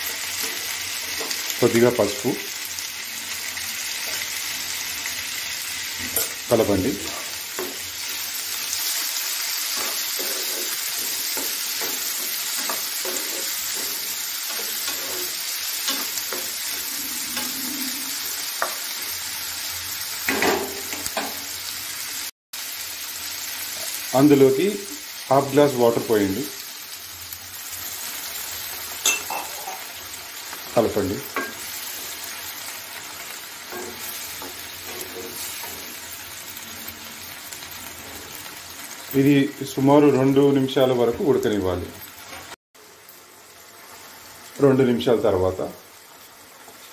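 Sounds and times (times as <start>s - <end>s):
vegetables sizzling in oil: 0.0s - 46.9s
spatula scraping pan: 9.3s - 19.1s, 33.6s - 36.0s.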